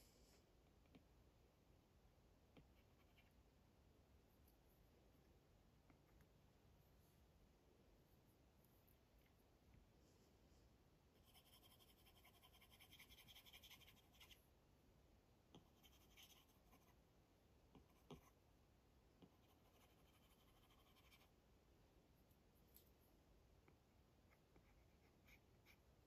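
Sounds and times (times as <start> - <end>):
stylus scratching on screen: 11.2 - 14.4, 15.6 - 17.0, 19.3 - 21.3.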